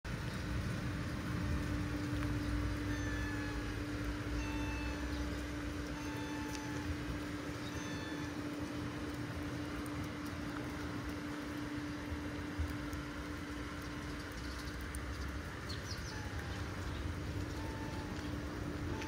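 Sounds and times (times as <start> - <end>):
motor rumbling and humming: 0.1 - 19.0.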